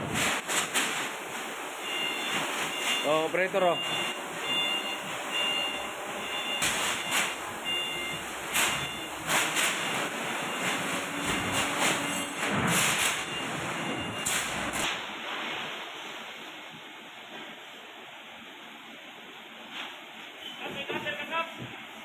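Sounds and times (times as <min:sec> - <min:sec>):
steady machine hum: 0:00.0 - 0:14.9
forklift warning alarm beeping: 0:01.8 - 0:14.8.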